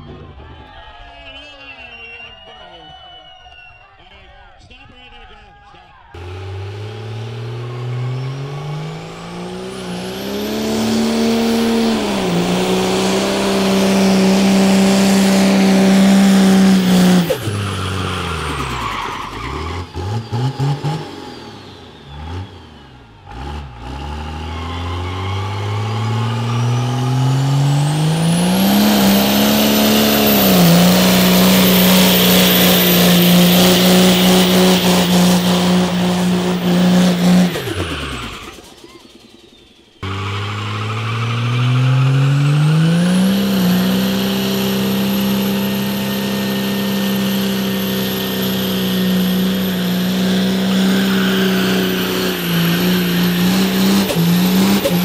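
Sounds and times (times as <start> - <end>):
car engine revving: 6.2 - 55.0
tyres squealing: 40.0 - 55.0.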